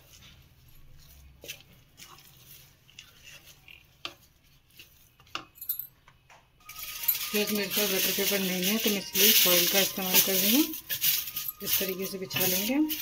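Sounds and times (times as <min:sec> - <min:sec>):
wooden spatula scraping metal pan: 0:06.8 - 0:13.0.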